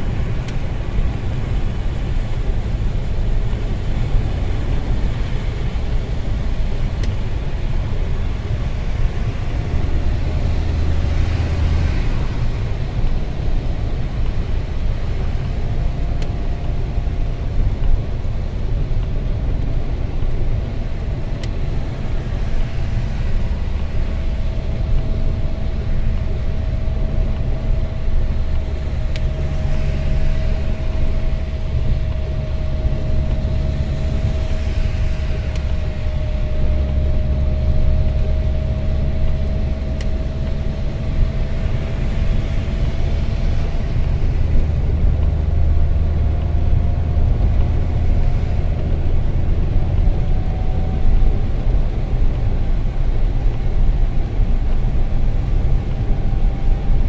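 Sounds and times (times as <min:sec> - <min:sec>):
car road rumble: 0:00.0 - 0:57.0
tyres hissing on wet road: 0:00.0 - 0:57.0
faint whine: 0:20.3 - 0:57.0.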